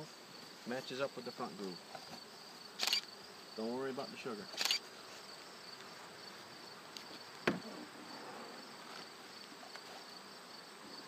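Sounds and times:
crickets chirring: 0.0 - 11.0
sharp knock: 7.4 - 7.7.

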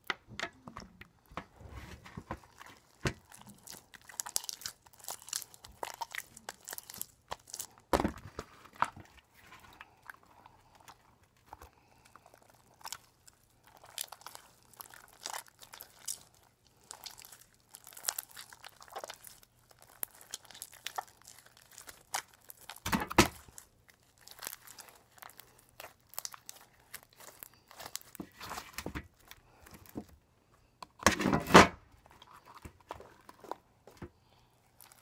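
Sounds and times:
slime squelching: 0.0 - 35.0.

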